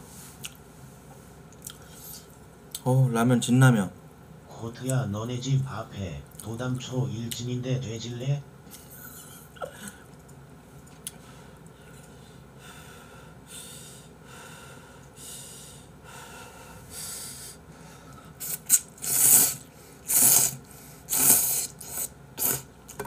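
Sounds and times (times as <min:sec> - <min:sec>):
person slurping noodles: 0:18.4 - 0:22.7.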